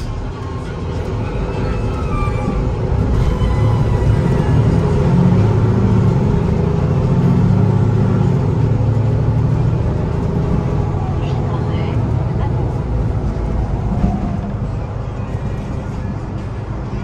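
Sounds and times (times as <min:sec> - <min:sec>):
bus diesel engine pulling hard: 0:00.0 - 0:17.0.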